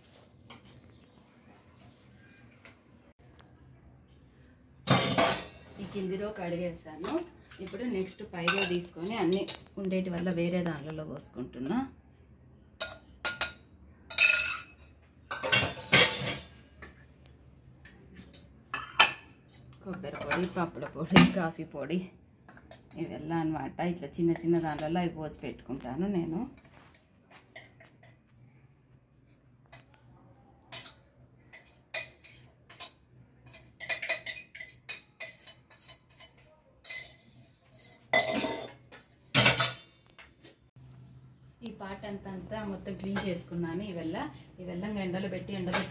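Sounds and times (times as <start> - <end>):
metal pots and lids clinking: 4.8 - 6.0, 7.0 - 10.6, 12.8 - 17.0, 17.8 - 21.6, 30.7 - 40.4.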